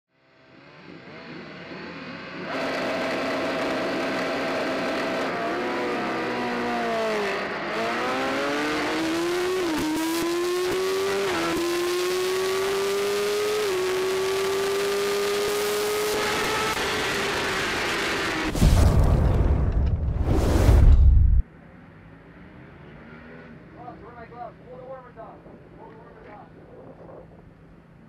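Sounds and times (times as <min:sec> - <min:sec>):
motorcycle engine revving: 0:00.2 - 0:18.6.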